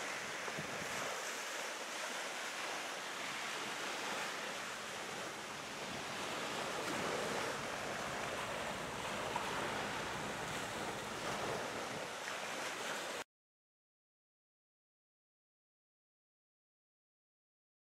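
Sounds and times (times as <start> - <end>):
choppy sea water: 0.0 - 13.3.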